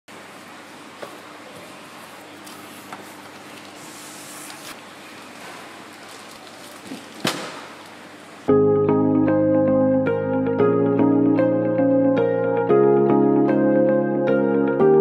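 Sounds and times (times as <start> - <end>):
cardboard and paper rustling: 2.4 - 4.8, 5.4 - 7.6.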